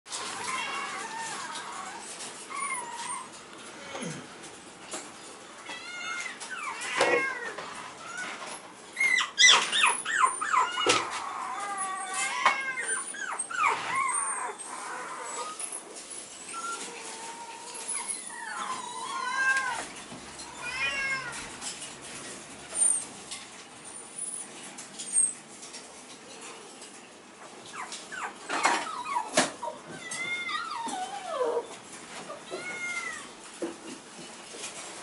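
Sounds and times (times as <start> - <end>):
puppy whining: 0.1 - 4.0, 5.6 - 21.9, 27.4 - 33.4.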